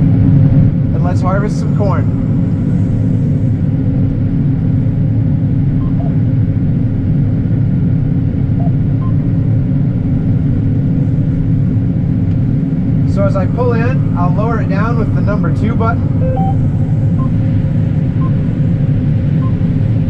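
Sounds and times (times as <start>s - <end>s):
combine engine rumble: 0.0s - 20.0s.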